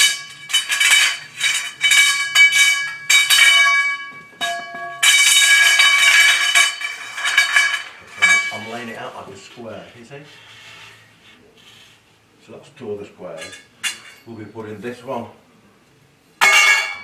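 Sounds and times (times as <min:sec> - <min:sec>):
metallic scraping ring: 0:00.0 - 0:09.0
metal tubes clinking and ringing: 0:00.0 - 0:09.1, 0:13.3 - 0:14.4, 0:16.4 - 0:17.0.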